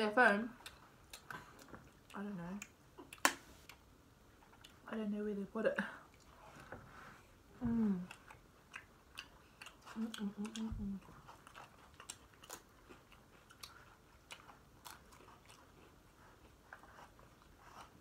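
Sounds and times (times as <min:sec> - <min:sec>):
chewing crunchy chips: 0:08.0 - 0:18.0.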